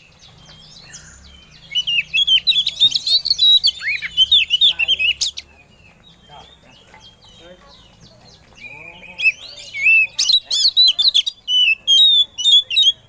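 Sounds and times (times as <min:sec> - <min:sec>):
bird song of chirps and whistles: 0:00.0 - 0:13.0.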